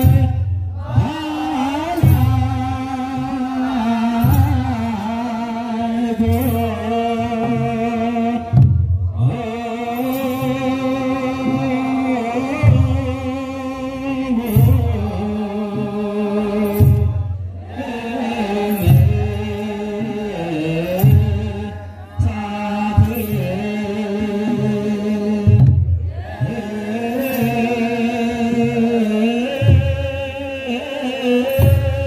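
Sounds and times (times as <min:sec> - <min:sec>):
choir chanting: 0:00.0 - 0:06.8, 0:16.6 - 0:23.3, 0:26.0 - 0:29.8.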